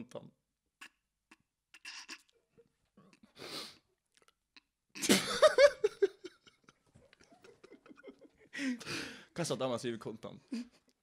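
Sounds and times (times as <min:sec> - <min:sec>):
man laughing: 0:05.0 - 0:08.8.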